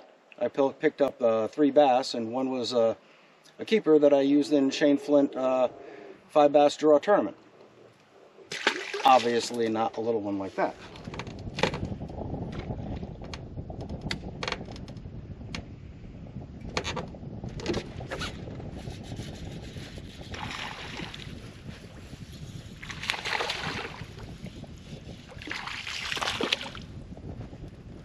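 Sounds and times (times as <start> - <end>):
wind rumble on microphone: 4.0 - 28.0
fish splashing at surface: 8.5 - 9.3.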